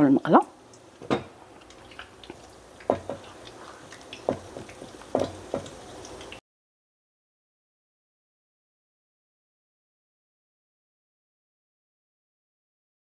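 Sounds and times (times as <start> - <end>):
battered food frying in oil: 0.0 - 6.4
oil popping and spitting: 0.7 - 6.4.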